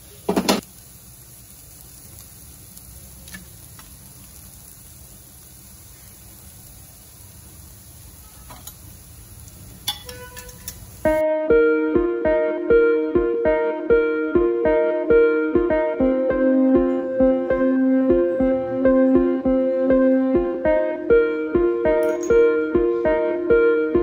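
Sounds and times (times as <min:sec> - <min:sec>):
green beans sizzling in a pan: 0:00.0 - 0:11.2.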